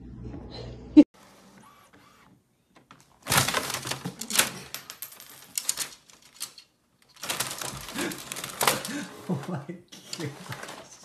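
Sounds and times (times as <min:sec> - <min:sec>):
inkjet printer clattering: 0:07.2 - 0:10.9.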